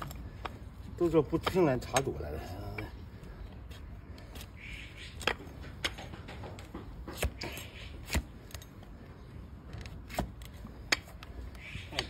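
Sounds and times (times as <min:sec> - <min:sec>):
knife crunching through hoof: 0:07.0 - 0:08.7, 0:09.9 - 0:11.2.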